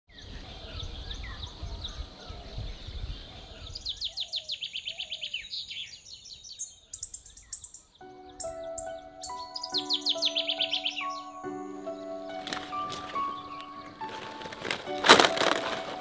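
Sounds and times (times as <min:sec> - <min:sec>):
birds chirping and singing: 0:00.1 - 0:16.0
fast high bird trill: 0:07.0 - 0:14.1
music with sustained notes: 0:07.9 - 0:16.0.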